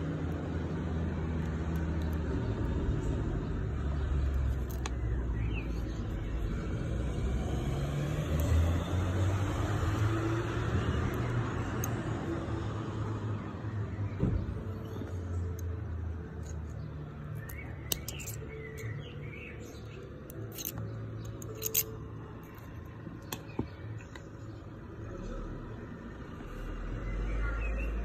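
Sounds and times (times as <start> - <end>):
small metal parts clicking: 4.2 - 5.0, 14.9 - 19.0, 19.6 - 23.3
birds chirping: 9.5 - 28.0.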